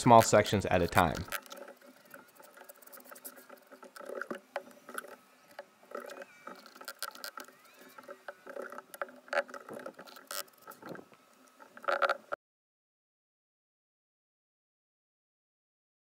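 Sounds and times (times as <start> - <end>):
trowel scraping mortar: 0.0 - 5.0.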